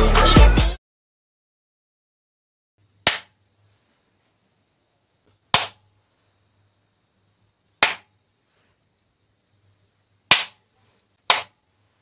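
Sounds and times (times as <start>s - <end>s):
sharp hand claps: 3.1s - 3.3s, 5.5s - 5.8s, 7.8s - 8.1s, 10.3s - 10.6s, 11.3s - 11.6s.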